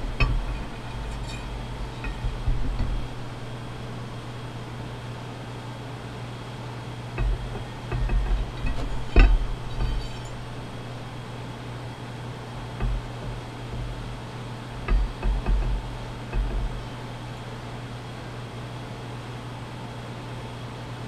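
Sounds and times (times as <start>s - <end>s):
steady low hum: 0.0s - 20.2s
metal parts clinking on workbench: 8.6s - 10.6s.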